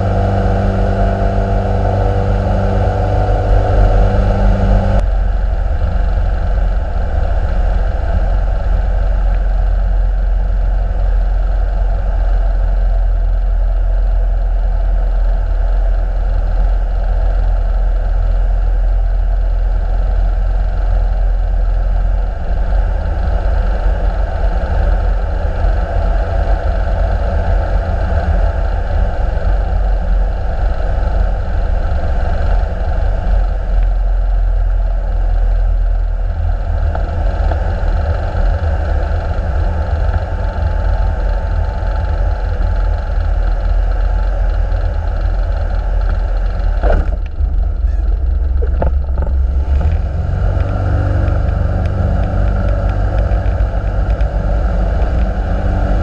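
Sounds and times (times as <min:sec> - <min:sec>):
airflow noise: 0:00.0 - 0:15.0
aircraft engine and propeller drone: 0:00.0 - 0:56.0.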